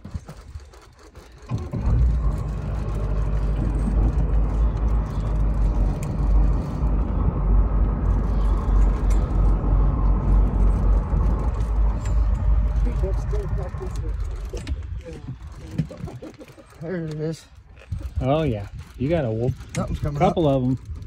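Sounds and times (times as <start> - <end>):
boat engine droning: 0.0 - 21.0.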